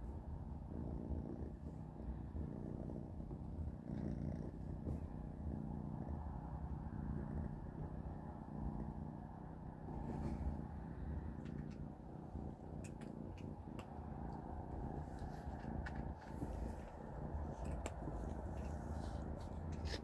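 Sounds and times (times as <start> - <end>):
kitten purring: 0.0 - 20.0.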